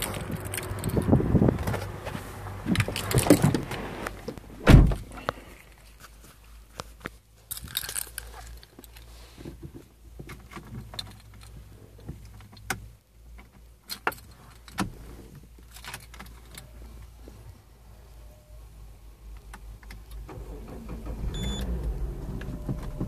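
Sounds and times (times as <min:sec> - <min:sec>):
car keys jangling: 0:00.0 - 0:02.0, 0:02.7 - 0:03.7, 0:07.4 - 0:09.1.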